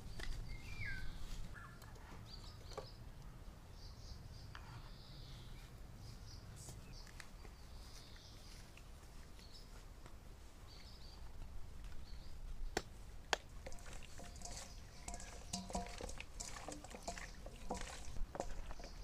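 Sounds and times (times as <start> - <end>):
faint bird calls: 0.6 - 3.0
hands handling chicken in steel bowl: 13.4 - 19.0.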